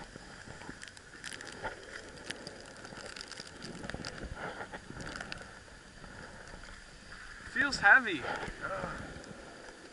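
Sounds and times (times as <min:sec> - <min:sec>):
gear clicks: 0:00.6 - 0:04.3.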